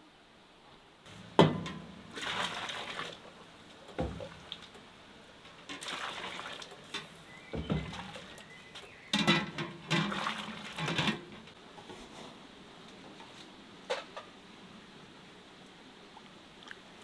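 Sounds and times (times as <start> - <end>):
water splashing and pouring: 1.2 - 4.8, 5.6 - 11.5.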